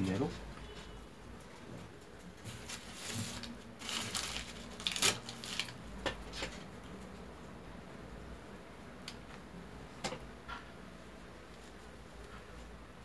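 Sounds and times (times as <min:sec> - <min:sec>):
handling rustling: 0:02.4 - 0:05.8.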